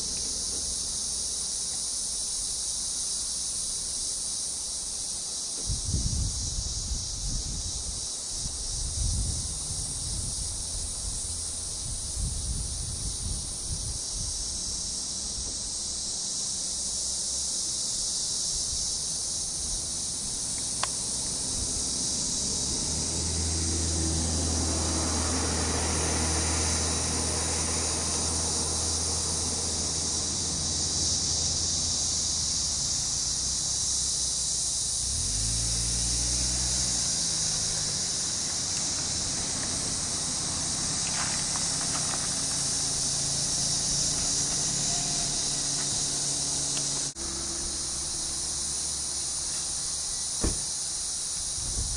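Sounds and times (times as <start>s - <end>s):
high-pitched insect chorus: 0.0s - 51.9s.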